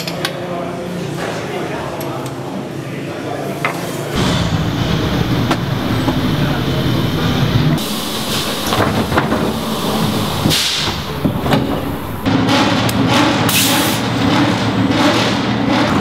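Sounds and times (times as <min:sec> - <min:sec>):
racing car engine idling: 0:04.2 - 0:12.3
short bursts of hissing: 0:06.6 - 0:12.3.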